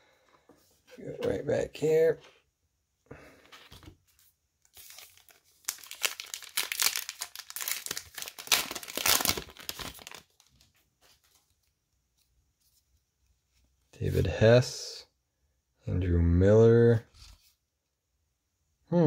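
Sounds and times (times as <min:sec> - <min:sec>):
wrapper being torn and crinkled: 0:04.7 - 0:10.6.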